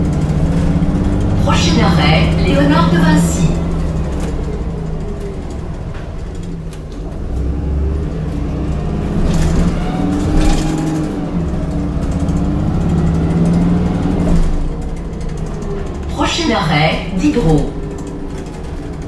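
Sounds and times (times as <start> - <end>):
bus engine accelerating: 0.0 - 19.0.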